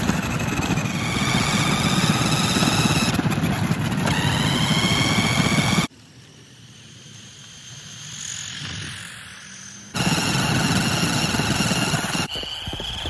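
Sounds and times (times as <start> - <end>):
loud rumbling engine: 0.0 - 5.9
rc car motor whine: 0.0 - 13.0.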